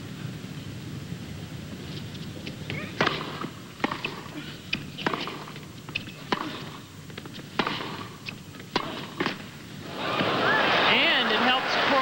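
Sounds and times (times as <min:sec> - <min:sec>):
tennis ball hit by rackets: 0:02.4 - 0:09.5.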